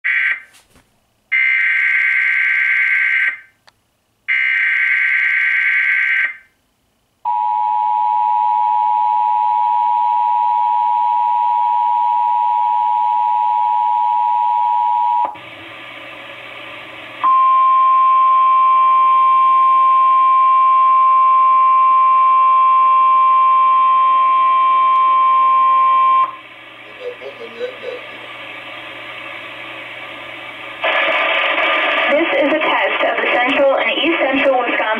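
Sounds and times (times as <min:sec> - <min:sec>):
two-tone attention signal: 0:17.2 - 0:26.4.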